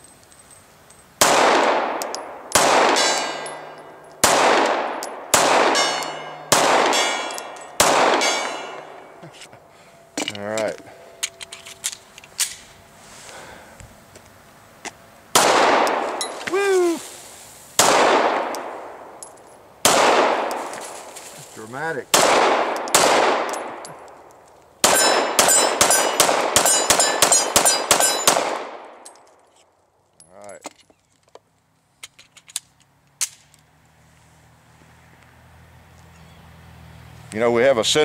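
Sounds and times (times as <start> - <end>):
pistol shots echoing: 1.2 - 9.2, 15.3 - 16.2, 17.8 - 19.2, 19.8 - 20.7, 22.1 - 24.1, 24.8 - 29.0
steel target ringing: 5.0 - 9.2, 24.8 - 28.4.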